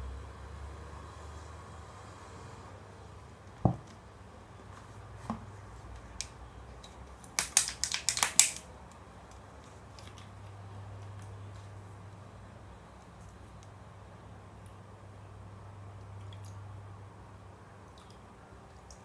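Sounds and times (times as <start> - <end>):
bottle set down thud: 3.6 - 3.8
plastic bottle crackling: 7.2 - 8.7.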